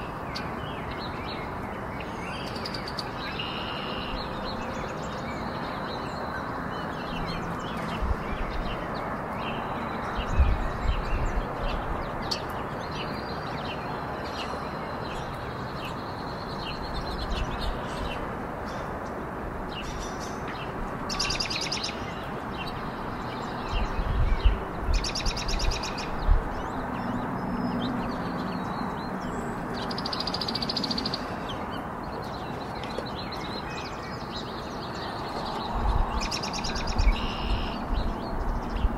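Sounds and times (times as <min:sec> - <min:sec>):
songbirds chirping: 0:00.0 - 0:38.9.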